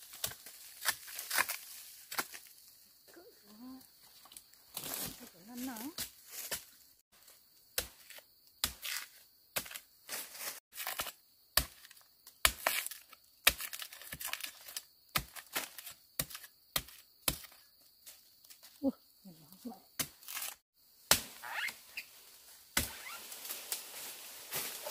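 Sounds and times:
sharp cracks and crunches: 0:00.1 - 0:02.5.

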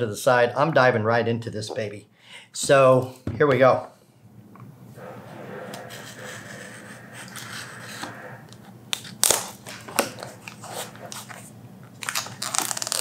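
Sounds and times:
plastic wrap crackling: 0:11.9 - 0:13.0.

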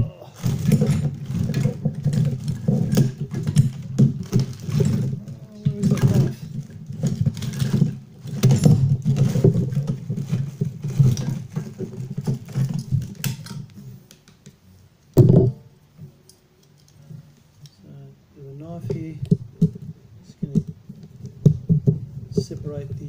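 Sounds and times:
metal parts clattering and scraping: 0:00.4 - 0:13.7, 0:18.9 - 0:23.0
loud knock: 0:15.2 - 0:15.6.

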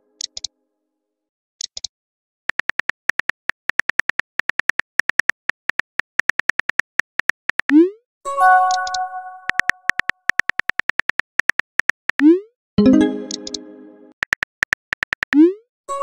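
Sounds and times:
phone keyboard clicks: 0:01.6 - 0:01.9, 0:02.5 - 0:07.7, 0:08.6 - 0:12.2, 0:14.2 - 0:15.4.

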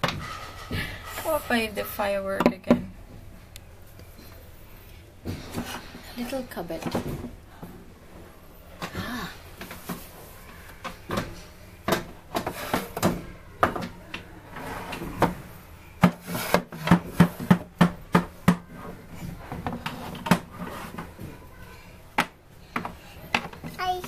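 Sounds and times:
scraping on wooden floor: 0:14.5 - 0:18.0, 0:18.7 - 0:21.3.

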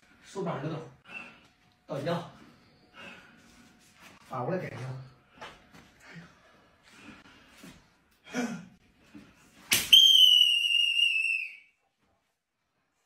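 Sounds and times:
high whistling tone: 0:09.9 - 0:11.8.

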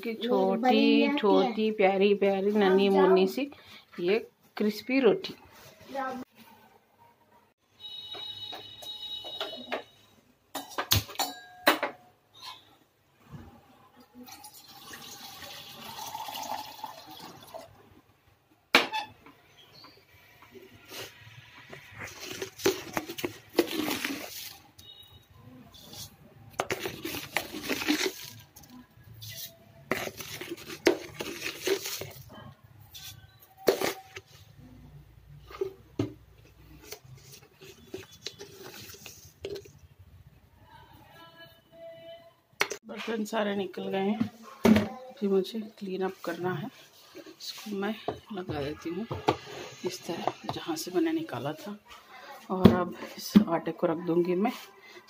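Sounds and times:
milk pouring into saucepan: 0:14.3 - 0:17.8.

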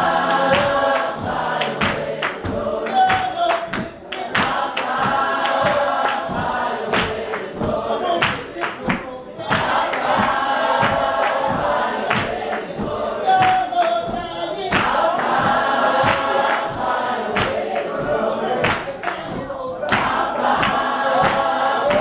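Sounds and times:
gospel choir singing: 0:00.0 - 0:22.0
rhythmic hand-clapping: 0:00.0 - 0:22.0.

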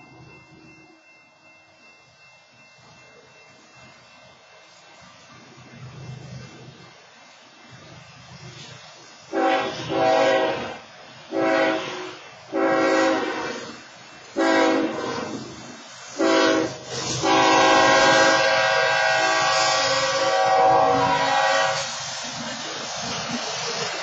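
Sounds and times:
low train rumble: 0:00.0 - 0:24.0
train air horn blasts: 0:09.3 - 0:15.5, 0:16.1 - 0:22.0.

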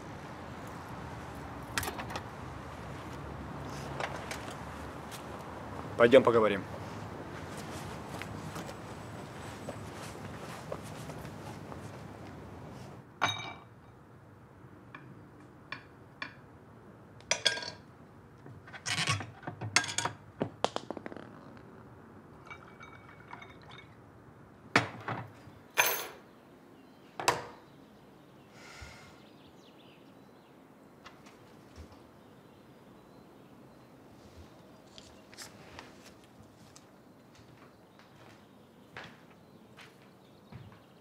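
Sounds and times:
glass clinking: 0:13.2 - 0:13.9, 0:22.4 - 0:24.0
knocks of objects handled: 0:19.4 - 0:21.6.

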